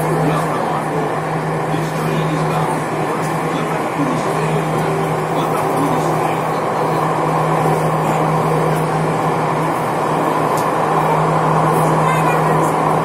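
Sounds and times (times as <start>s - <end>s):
metro train rumbling: 0.0s - 13.0s.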